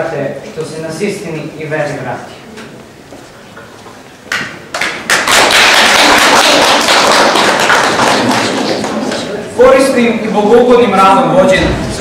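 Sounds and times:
audience applauding: 4.7s - 9.3s.

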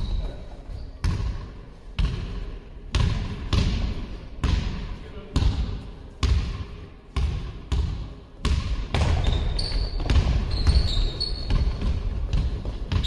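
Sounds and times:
shoes squeaking on court: 0.0s - 1.2s, 9.0s - 13.0s
basketball bouncing in a hall: 0.0s - 13.0s.

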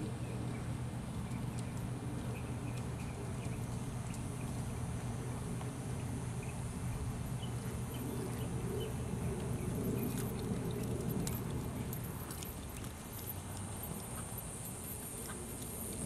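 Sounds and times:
horse hoofbeats on grass: 7.5s - 16.0s.

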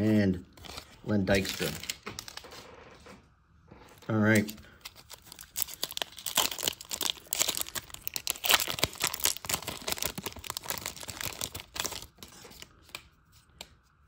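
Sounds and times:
wrapper tearing and crinkling: 0.6s - 2.5s, 4.3s - 13.0s.

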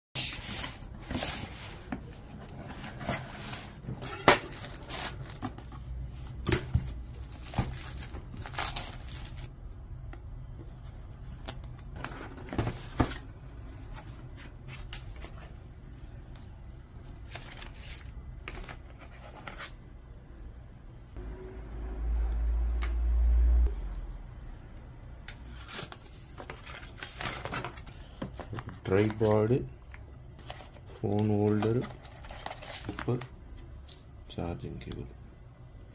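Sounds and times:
cardboard and plastic rustling: 0.4s - 9.5s, 10.6s - 15.6s, 25.5s - 33.3s.

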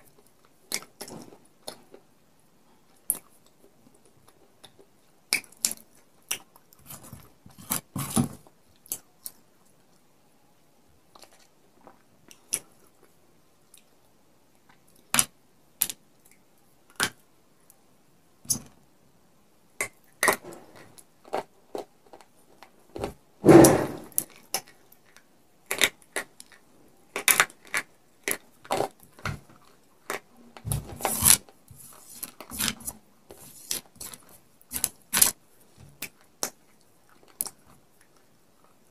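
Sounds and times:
clay cup cracking and crunching: 0.0s - 2.1s, 19.8s - 38.9s.

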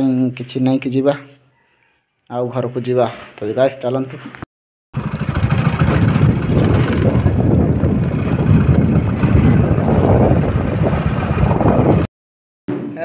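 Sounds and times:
vehicle engine rumbling: 5.0s - 12.1s.

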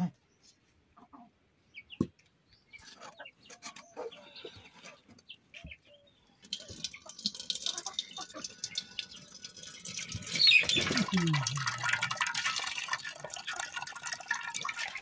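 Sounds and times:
hen clucking: 0.9s - 2.1s, 2.7s - 9.4s
liquid pouring through metal plate: 6.4s - 15.0s
metal pots knocking: 6.5s - 15.0s.

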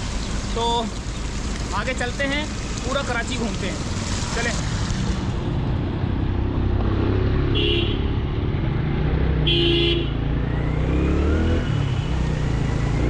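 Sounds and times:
motorcycle engine on wet street: 0.0s - 13.0s
vehicle horn toots: 7.5s - 8.1s, 9.4s - 10.2s.

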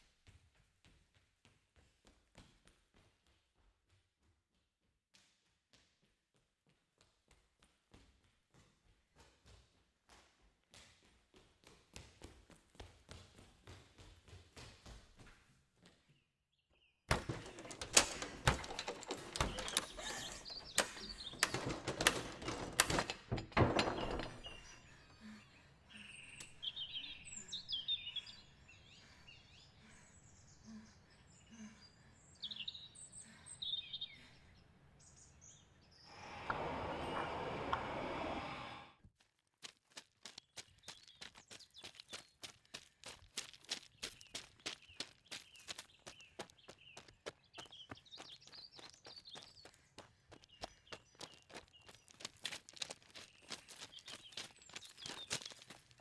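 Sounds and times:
birds chirping: 16.7s - 38.9s, 43.8s - 56.0s
dense knocks and impacts: 17.1s - 20.1s, 20.8s - 24.6s.

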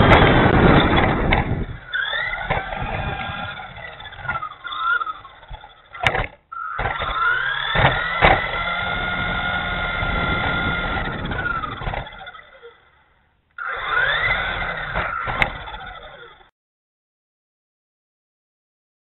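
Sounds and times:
toy truck electric motor whine: 0.0s - 16.5s
tyre and drivetrain rumble: 0.0s - 16.5s
sharp knocks: 6.0s - 8.6s.

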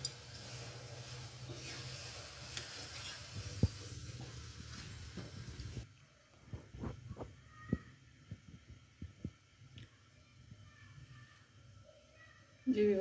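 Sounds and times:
metal spatula scraping: 0.0s - 4.0s
ghee sizzling on a griddle: 0.0s - 5.9s.

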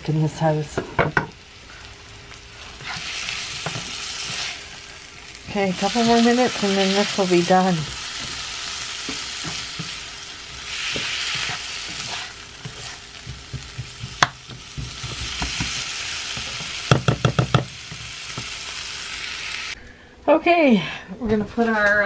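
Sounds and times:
vegetables sizzling in a frying pan: 0.0s - 19.8s
spatula striking a pan: 10.9s - 18.6s.

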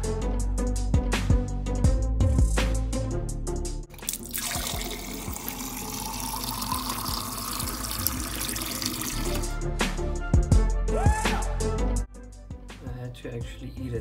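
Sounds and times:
tap water filling a glass: 3.9s - 9.5s.

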